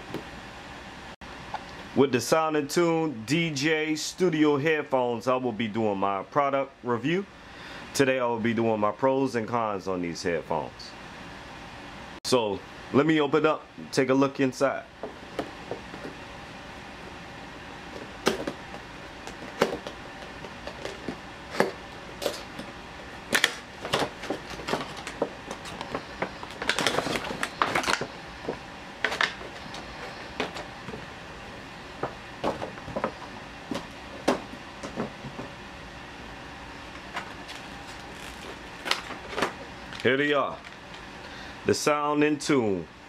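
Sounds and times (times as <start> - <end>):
low background hum: 0.0 - 43.0
plastic crinkling: 23.4 - 28.1, 37.3 - 40.9.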